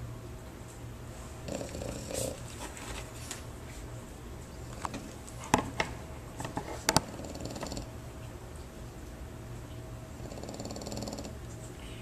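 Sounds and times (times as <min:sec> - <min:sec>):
dog snoring softly: 0:01.4 - 0:02.4, 0:07.0 - 0:07.9, 0:10.2 - 0:11.4.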